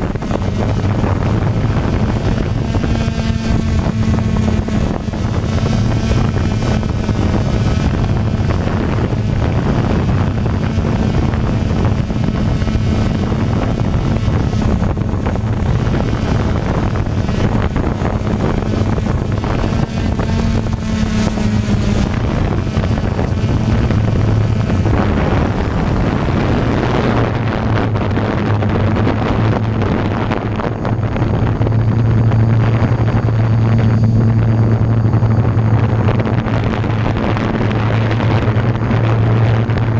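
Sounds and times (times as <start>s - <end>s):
drone motors humming: 0.0s - 39.9s
wind rush on microphone: 0.0s - 39.9s.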